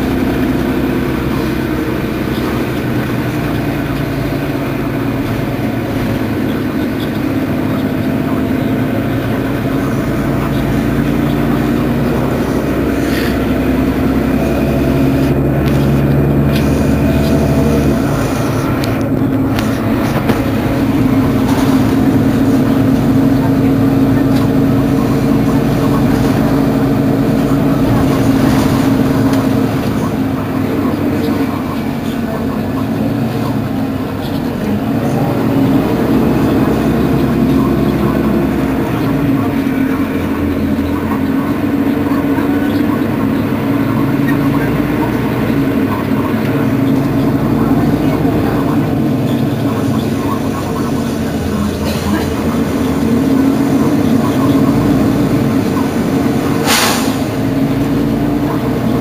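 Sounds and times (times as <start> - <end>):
bus engine idling: 0.0 - 59.0
short hiss: 56.6 - 57.2.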